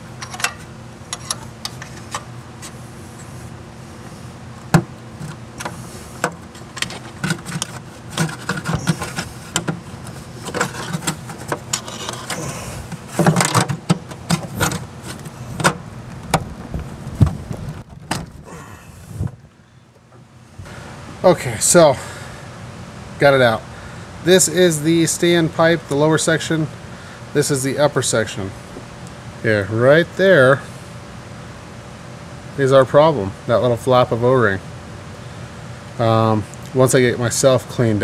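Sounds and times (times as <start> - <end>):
low hum: 0.0 - 21.3
metal tools clicking and knocking: 0.2 - 2.2.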